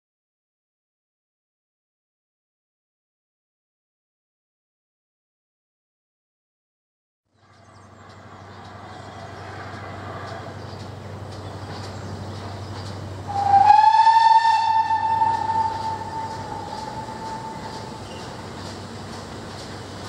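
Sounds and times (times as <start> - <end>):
steam train rumbling: 7.3 - 20.0
steam whistle blast: 13.3 - 17.9.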